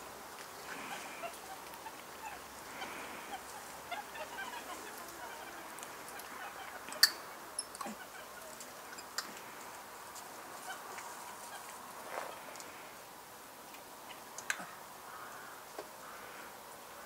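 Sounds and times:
faint animal calls: 0.6 - 13.0.

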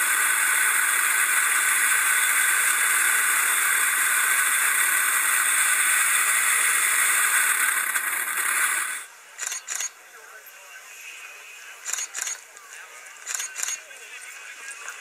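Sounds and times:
freefall wind noise: 0.0 - 9.1.

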